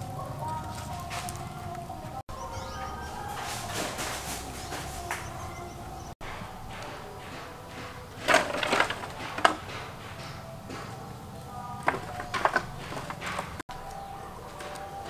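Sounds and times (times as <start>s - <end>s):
bamboo pieces clattering: 0.0s - 2.0s, 3.2s - 5.4s, 6.2s - 15.0s
bamboo knocking: 3.2s - 5.6s, 6.2s - 11.1s, 11.8s - 15.0s.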